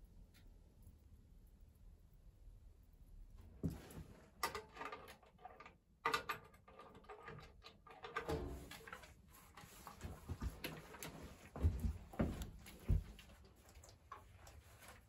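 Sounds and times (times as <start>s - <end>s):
metal knocking and scraping on metal: 3.7s - 11.1s.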